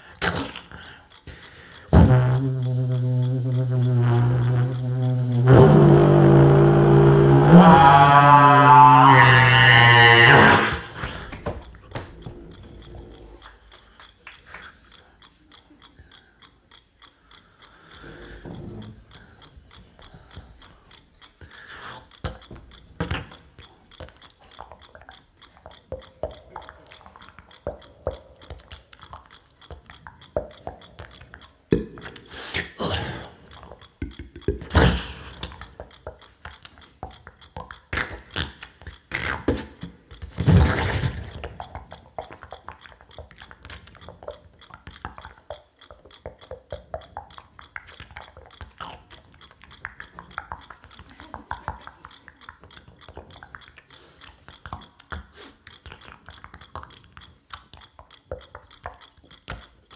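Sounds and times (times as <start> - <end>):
beatboxing into a microphone: 0.0 - 11.5, 21.6 - 23.5, 34.0 - 59.6.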